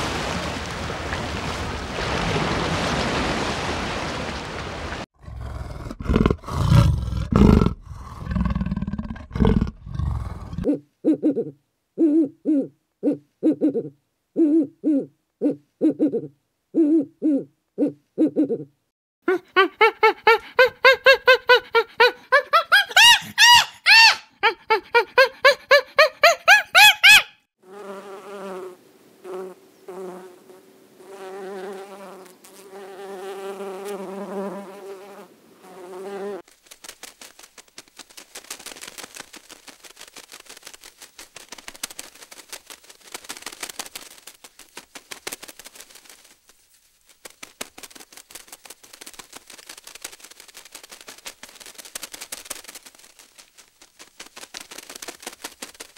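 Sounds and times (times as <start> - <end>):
animal calling in pitched notes: 19.3 - 27.4
insect buzzing: 27.6 - 44.4.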